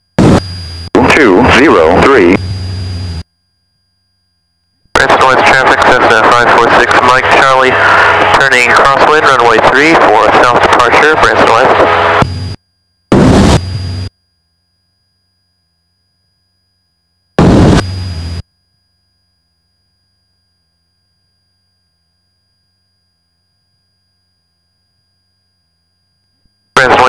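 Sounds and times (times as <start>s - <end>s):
bursts of static noise: 0.1s - 3.2s, 4.9s - 14.1s, 17.4s - 18.4s, 26.8s - 27.0s.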